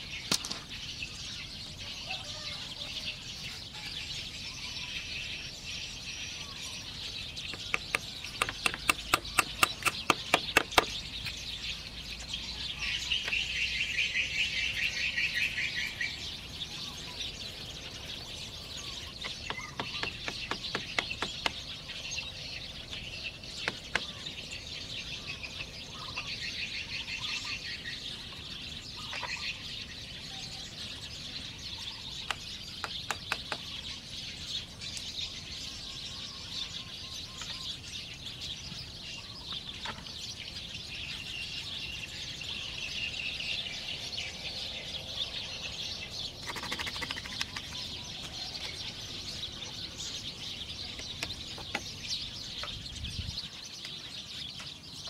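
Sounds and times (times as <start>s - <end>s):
forest birds chirping: 0.0s - 55.0s.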